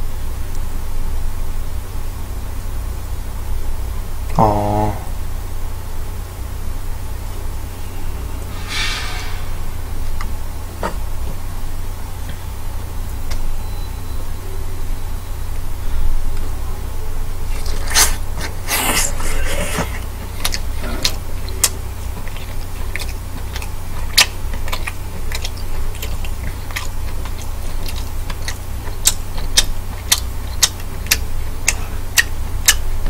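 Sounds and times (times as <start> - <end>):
steady low hum: 0.0 - 33.0
chewing with wet mouth clicks: 17.4 - 33.0
wet bite and slurp: 17.6 - 31.8.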